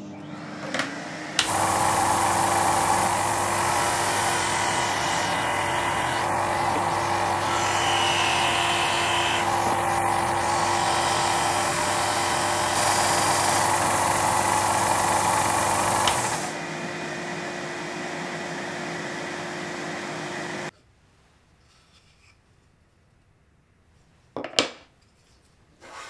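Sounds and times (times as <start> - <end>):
sander motor hum: 0.0 - 20.7
disc sander grinding wood: 0.2 - 16.7.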